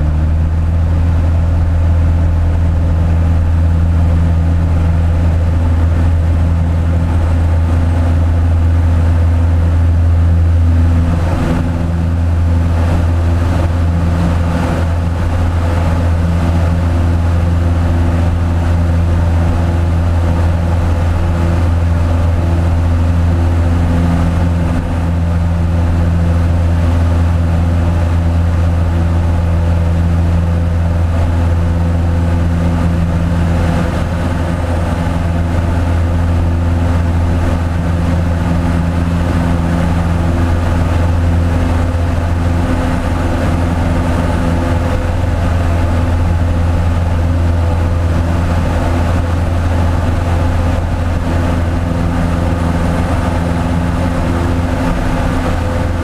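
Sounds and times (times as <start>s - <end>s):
propeller plane engine drone: 0.0s - 56.0s
rushing air: 0.0s - 56.0s.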